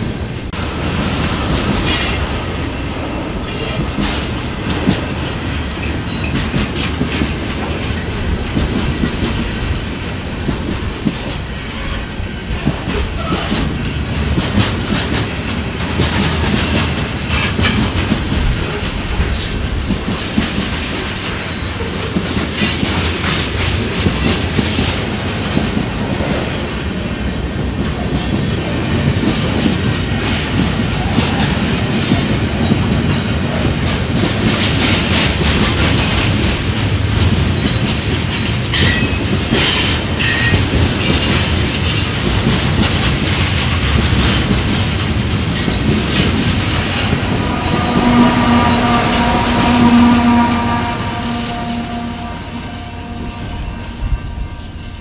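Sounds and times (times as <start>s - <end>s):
train wheels rumbling on rail: 0.0s - 55.0s
wheels clicking over rail joints: 3.4s - 48.2s.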